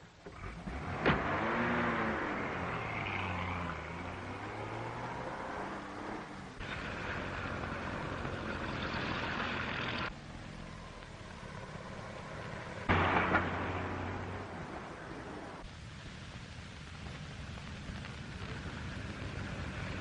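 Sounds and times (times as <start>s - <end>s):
car engine and road noise: 0.0s - 20.0s
sudden loud burst of noise: 12.8s - 15.7s.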